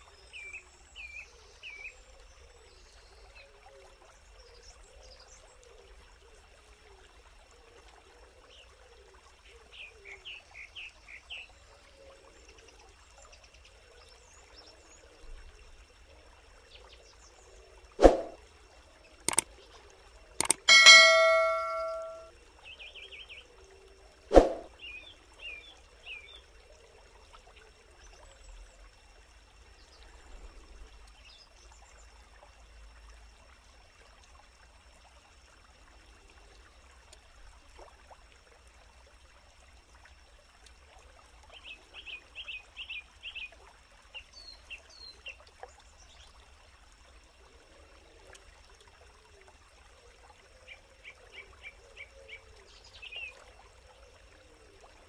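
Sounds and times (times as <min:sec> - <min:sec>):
stream trickling: 0:00.0 - 0:55.0
bird chirping: 0:20.4 - 0:22.3.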